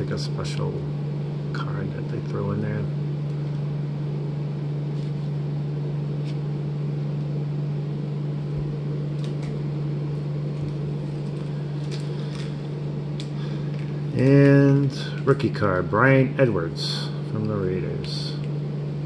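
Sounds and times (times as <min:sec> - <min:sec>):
low hum: 0:00.0 - 0:19.0
trading cards flipping: 0:06.2 - 0:06.5, 0:09.1 - 0:09.6, 0:10.5 - 0:15.4.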